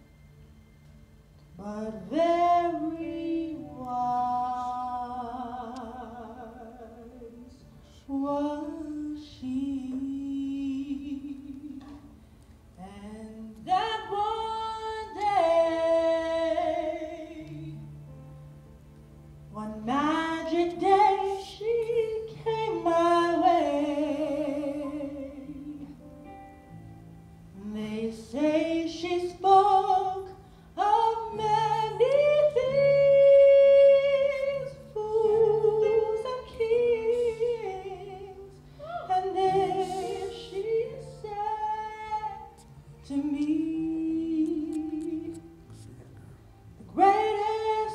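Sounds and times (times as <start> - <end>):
woman singing into a microphone: 1.6 - 12.2, 12.8 - 17.9, 19.5 - 26.0, 27.6 - 45.6, 46.8 - 47.9.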